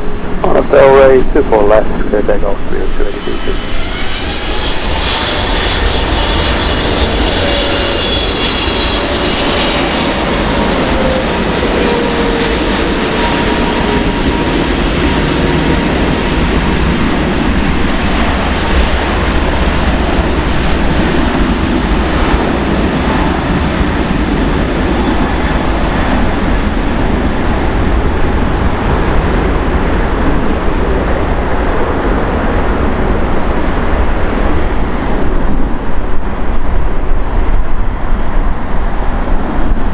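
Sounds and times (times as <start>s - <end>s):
jet engines roaring: 0.0s - 39.9s.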